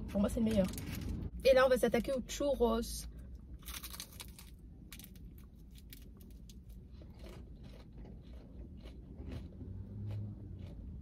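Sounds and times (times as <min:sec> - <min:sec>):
crunching while chewing: 0:03.6 - 0:11.0.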